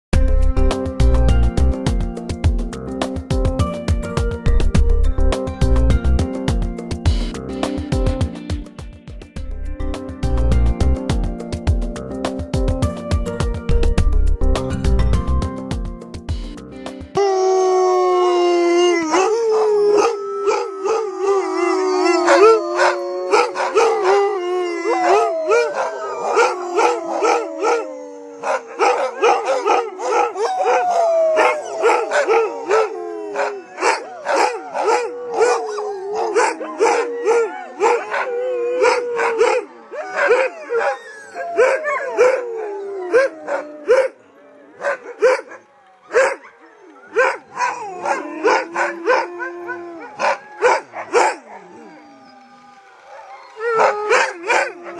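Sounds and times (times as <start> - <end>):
huskies howling: 17.2 - 54.9
dogs barking and yipping: 22.0 - 24.3, 24.9 - 44.2, 44.8 - 52.4, 53.0 - 54.9.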